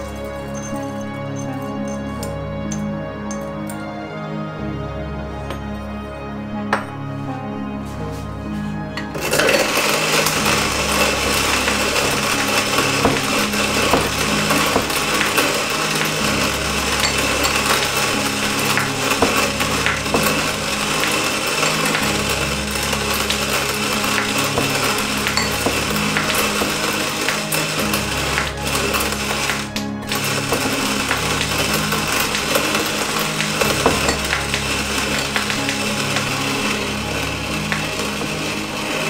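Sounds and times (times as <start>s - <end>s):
hand grinder crunching coffee beans: 9.1s - 39.0s.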